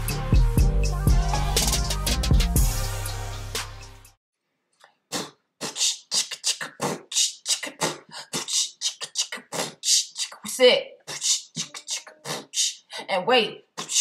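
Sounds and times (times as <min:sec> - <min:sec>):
drum-backed background music: 0:00.0 - 0:04.0
woman's hissy vocal bursts: 0:05.2 - 0:13.1, 0:13.8 - 0:14.0.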